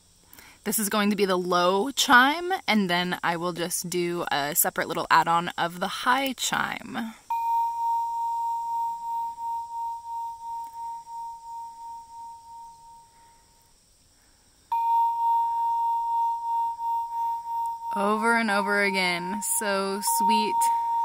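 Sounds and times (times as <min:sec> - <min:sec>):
soft bell-like electronic chime: 0:07.3 - 0:13.2, 0:14.7 - 0:21.0.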